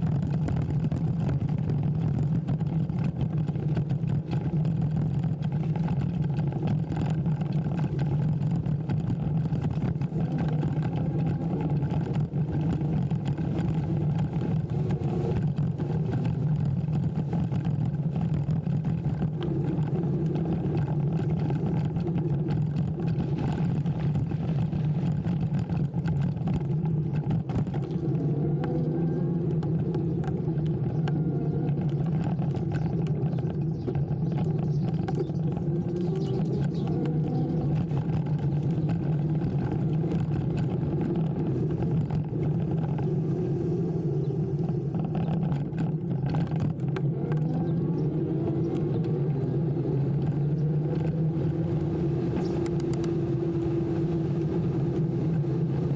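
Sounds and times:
tyre rumble: 0.0s - 55.9s
wind rushing over microphone: 0.0s - 55.9s.

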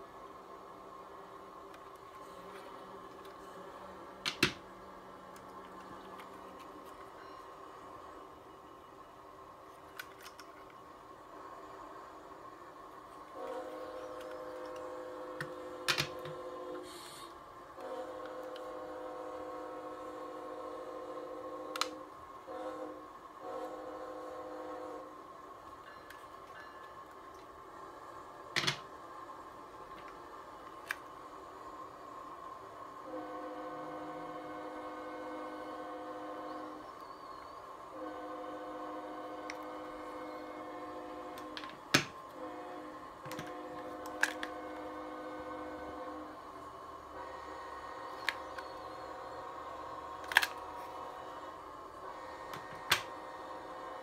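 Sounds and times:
plastic clicks of model train: 9.8s - 10.8s, 21.7s - 22.1s, 29.9s - 31.2s, 41.3s - 42.2s, 43.3s - 44.9s, 48.1s - 48.7s, 50.2s - 50.9s
train horn chord: 13.2s - 27.4s, 32.8s - 54.0s.

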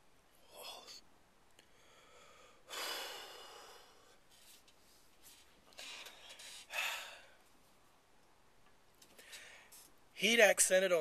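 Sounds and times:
man breathing hard: 1.6s - 4.2s, 5.7s - 7.4s.

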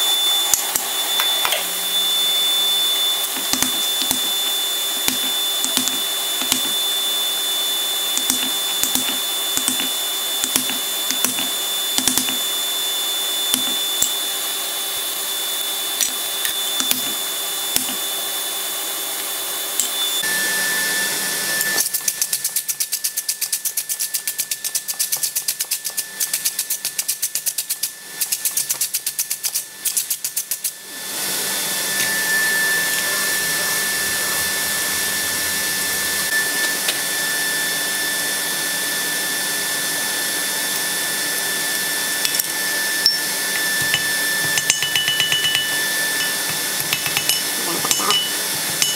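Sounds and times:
forge blower whooshing: 0.0s - 21.8s, 30.8s - 48.9s
mallet tapping iron bar: 43.8s - 48.9s.

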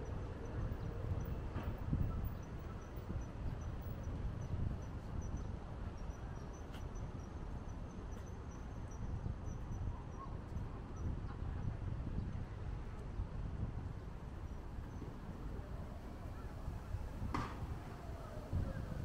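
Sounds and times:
traffic rumble: 11.2s - 19.0s.

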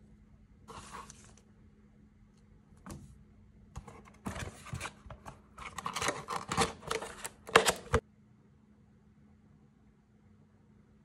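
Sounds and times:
cardboard and paper rustling: 0.7s - 1.4s, 3.8s - 8.0s.

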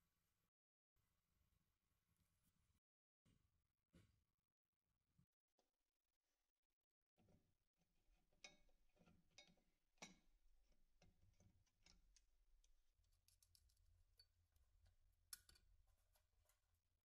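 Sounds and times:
faint clicks of hand tool on parts: 13.2s - 15.7s.

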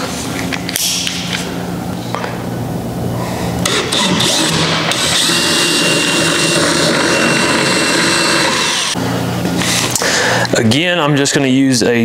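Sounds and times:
power drill whining: 3.6s - 9.0s.

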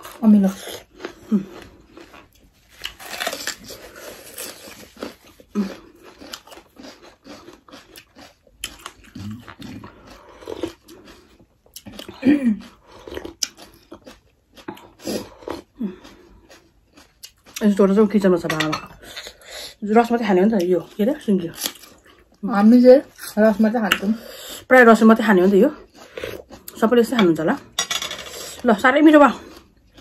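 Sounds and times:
chewing: 0.0s - 18.0s, 25.7s - 26.8s.

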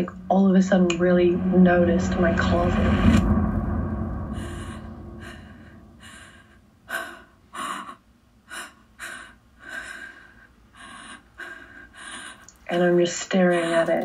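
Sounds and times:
low rumble: 0.0s - 7.3s
shaky breaths and gasps: 6.0s - 12.7s.

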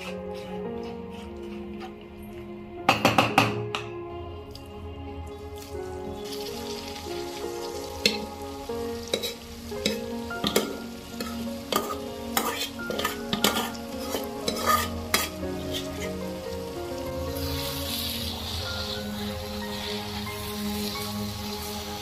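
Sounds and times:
carrots frying in a pan: 5.6s - 22.0s
spatula knocking and scraping pan: 9.1s - 15.9s.

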